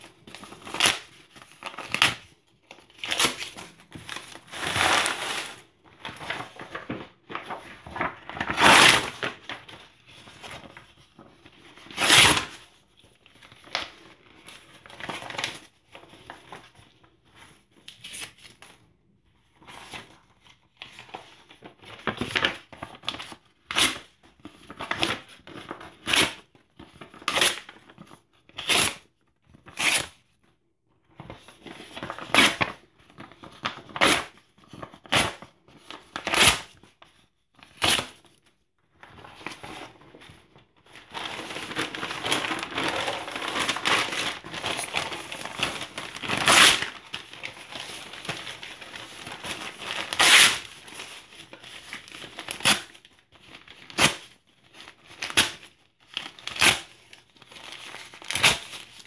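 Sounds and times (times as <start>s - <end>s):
paper crinkling and rustling: 0.1s - 18.9s, 19.5s - 28.4s, 31.2s - 59.0s
paper ripping: 41.0s - 51.1s.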